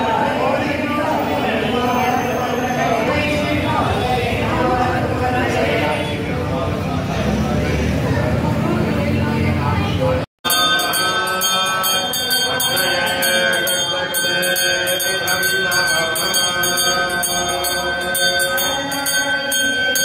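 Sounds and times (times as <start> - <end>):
hand bell ringing: 10.4 - 20.0.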